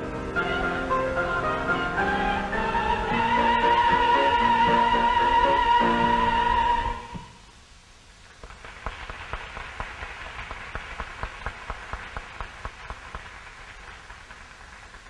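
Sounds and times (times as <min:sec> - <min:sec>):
audience applause: 0:08.4 - 0:15.0.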